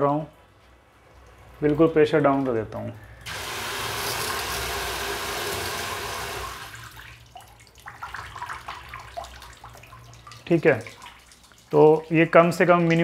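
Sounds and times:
water rushing from tap: 3.2s - 12.1s.

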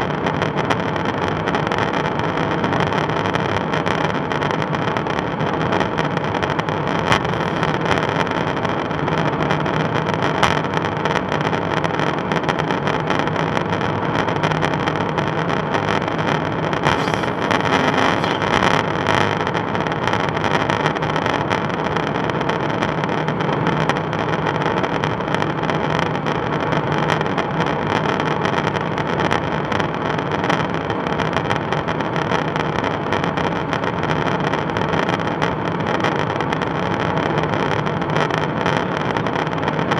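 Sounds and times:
aircraft engine drone: 7.1s - 8.0s, 16.9s - 18.9s.

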